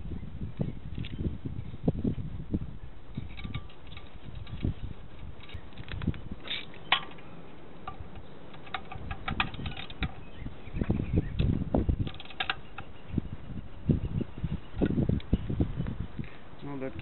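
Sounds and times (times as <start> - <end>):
metal tools clinking: 3.2 - 10.3, 12.0 - 13.0.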